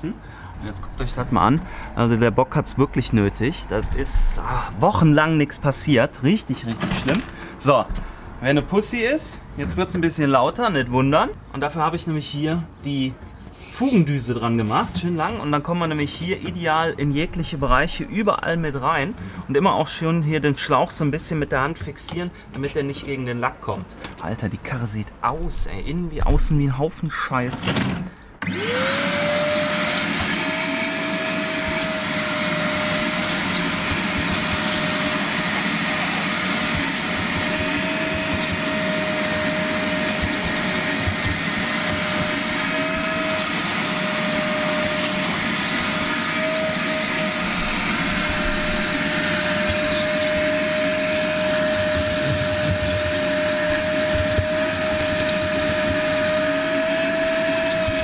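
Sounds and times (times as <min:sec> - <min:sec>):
vacuum cleaner motor whine: 0:28.4 - 0:58.0.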